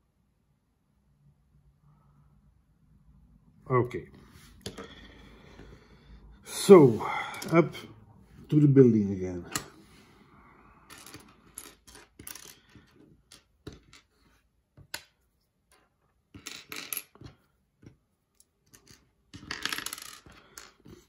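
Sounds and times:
plastic bricks clicking and clattering: 10.9 - 14.1, 18.6 - 21.0.

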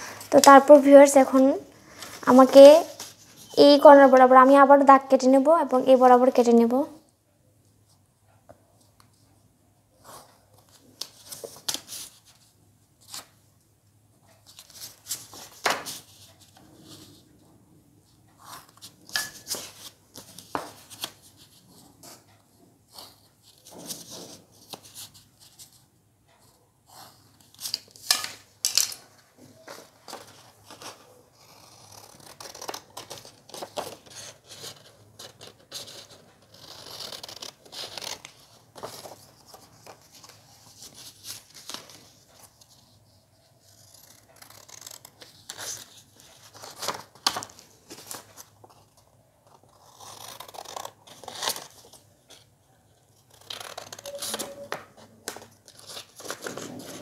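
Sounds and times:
scissors snipping paper: 30.7 - 39.2, 43.6 - 47.5, 49.6 - 51.9, 53.2 - 54.7.

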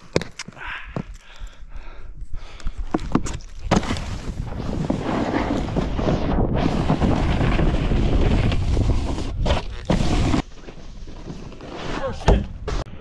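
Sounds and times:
snowboard sliding over snow: 3.7 - 12.9.

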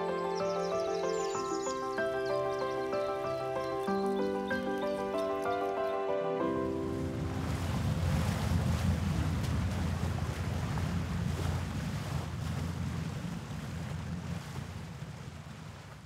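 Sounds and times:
low rushing rumble with hiss: 6.8 - 15.8.

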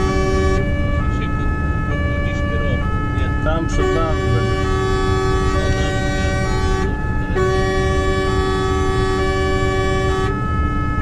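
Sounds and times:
engine and road rumble: 0.0 - 11.0
fire engine siren: 0.0 - 11.0.

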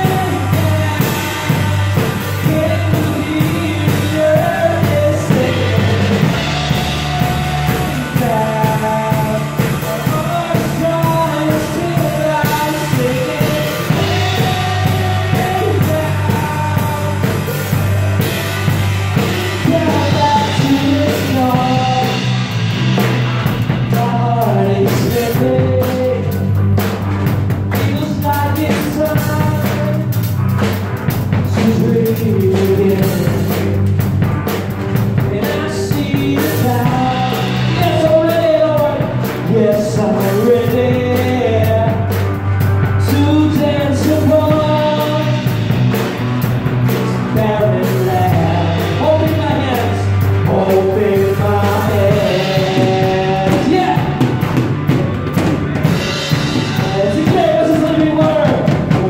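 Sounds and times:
group singing: 0.0 - 18.3
drum kit struck with sticks: 0.0 - 59.0
keyboard: 0.0 - 59.0
live worship band playing: 0.0 - 59.0.

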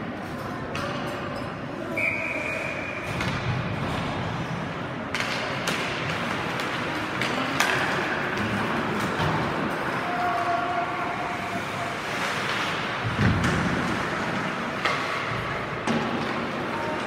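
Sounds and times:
arena crowd hubbub: 0.0 - 17.0
whistle blowing: 1.9 - 3.1
hockey sticks and puck knocking: 5.1 - 9.7, 12.2 - 17.0.

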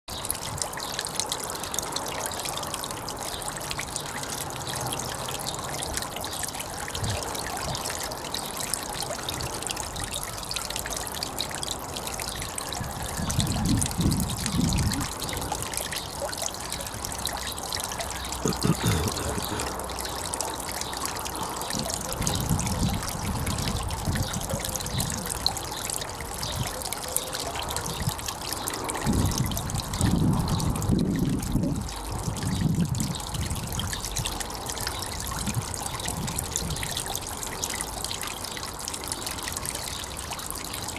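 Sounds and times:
water splashing over stone ledge: 3.8 - 40.9
wind rumble on microphone: 6.9 - 7.9, 12.8 - 15.7, 21.7 - 25.7, 27.7 - 37.1.

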